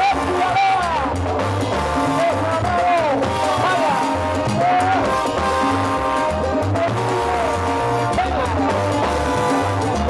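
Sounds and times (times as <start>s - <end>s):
salsa band playing live: 0.0s - 10.0s
person singing: 2.0s - 5.7s.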